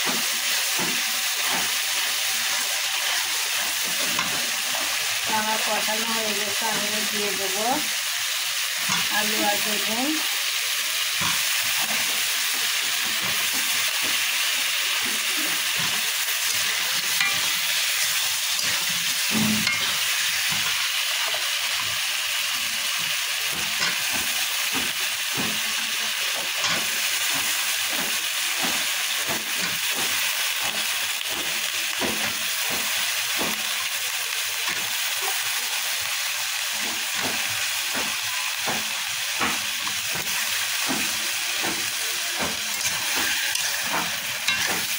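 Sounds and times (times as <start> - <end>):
vegetables sizzling in oil: 0.0 - 44.9
metal spatula scraping pan: 13.1 - 22.0, 42.4 - 44.9.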